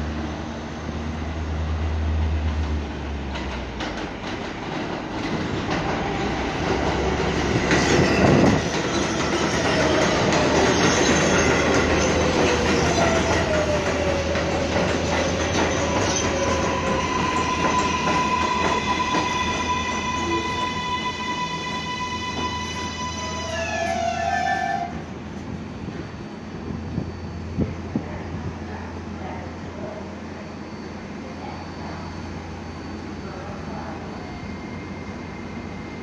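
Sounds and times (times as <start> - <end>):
train wheel rumble and clatter: 1.9 - 20.8.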